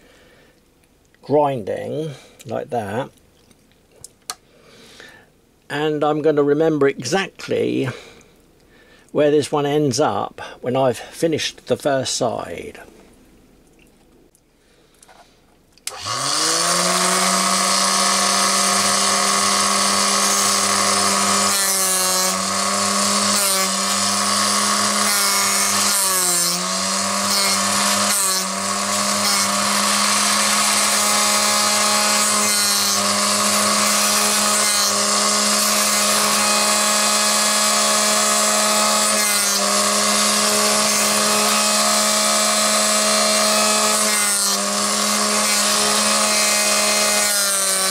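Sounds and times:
drill grinding against wheel: 15.9s - 47.9s
grinder motor running: 15.9s - 47.9s.

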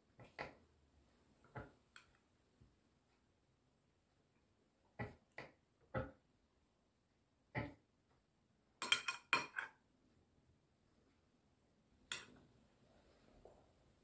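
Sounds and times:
spoon clinking on glass bowl: 8.8s - 9.7s.

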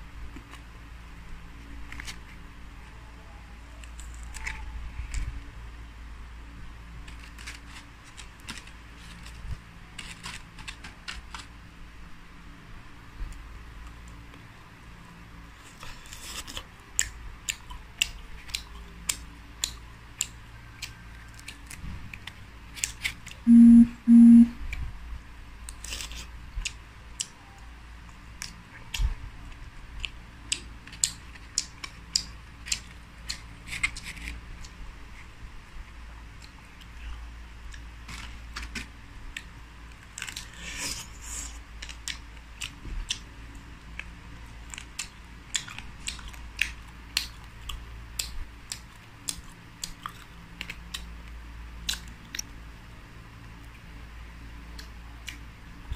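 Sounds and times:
crackles of fried food torn apart: 7.0s - 11.6s, 25.6s - 26.8s, 37.7s - 43.3s
chewing: 15.6s - 23.4s, 28.1s - 35.3s, 39.4s - 43.3s, 44.0s - 52.6s
short electronic beeps: 23.5s - 24.6s.

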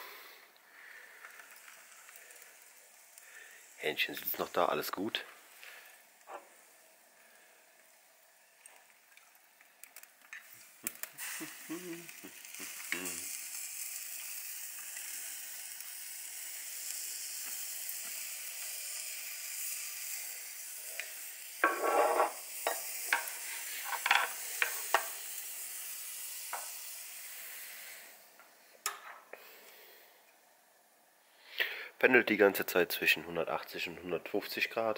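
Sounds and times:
chicken sizzling on grill: 0.0s - 30.2s
fat spitting and crackling: 9.8s - 13.5s.

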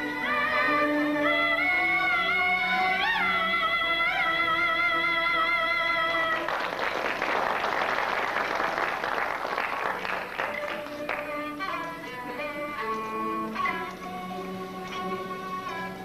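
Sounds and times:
strings playing melody: 0.0s - 6.8s, 8.6s - 16.0s
audience applause: 6.4s - 11.9s.

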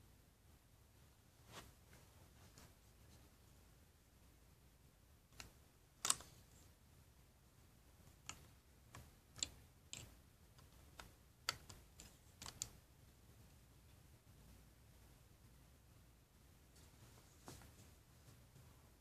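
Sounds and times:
plastic bricks clicking: 5.4s - 6.4s, 8.2s - 12.8s.

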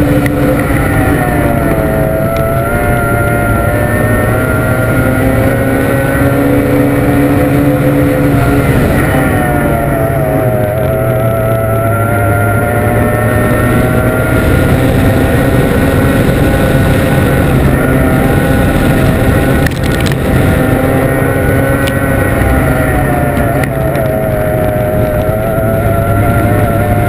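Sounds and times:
outboard engine at high revs: 0.0s - 27.0s
water noise: 0.0s - 27.0s
wind noise: 0.0s - 27.0s.

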